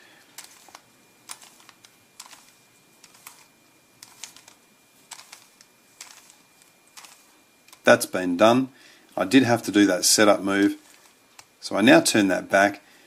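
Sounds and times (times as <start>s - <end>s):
puzzle cube clicks: 0.4s - 6.4s, 7.0s - 7.8s.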